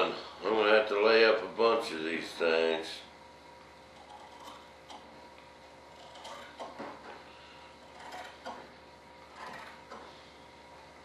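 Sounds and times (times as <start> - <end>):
shop equipment humming: 0.0 - 11.0.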